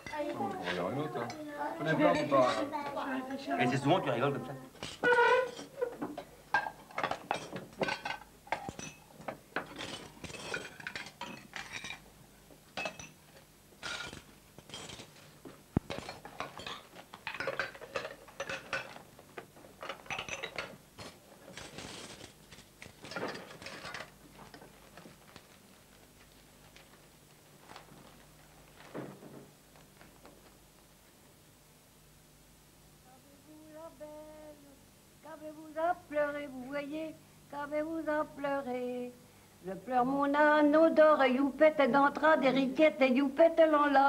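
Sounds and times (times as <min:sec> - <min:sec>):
plates and cutlery clinking: 0:04.8 - 0:12.1, 0:12.8 - 0:13.2, 0:13.8 - 0:15.2, 0:15.9 - 0:19.0, 0:19.8 - 0:22.3, 0:23.0 - 0:24.2.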